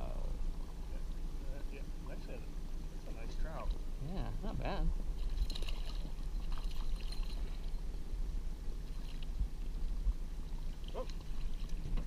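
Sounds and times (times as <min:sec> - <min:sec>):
boat motor humming: 0:00.0 - 0:12.0
fish splashing at surface: 0:05.2 - 0:07.6.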